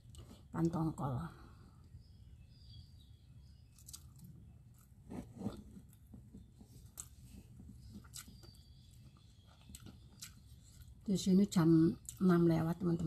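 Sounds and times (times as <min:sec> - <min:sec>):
faint chewing: 0:03.7 - 0:11.1, 0:12.0 - 0:12.3.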